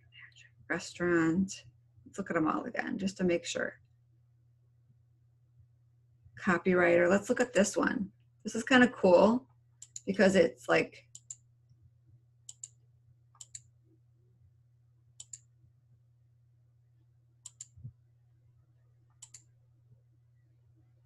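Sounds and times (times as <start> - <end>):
faint low hum: 0.0 - 21.0
computer mouse clicks: 9.8 - 10.1, 11.1 - 11.4, 12.4 - 12.8, 13.4 - 13.7, 15.2 - 15.5, 17.4 - 17.9, 19.1 - 19.5.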